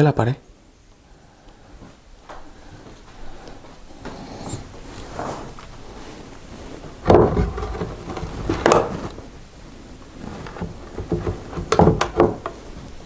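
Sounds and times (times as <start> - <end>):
wooden lid knocking and scraping: 7.0 - 9.1, 10.4 - 12.7
wooden lid knocking shut: 11.0 - 12.6.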